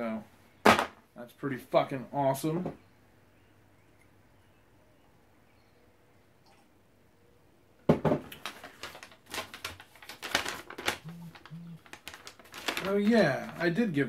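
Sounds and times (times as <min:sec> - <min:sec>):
paper rustling and crackling: 0:08.3 - 0:14.0.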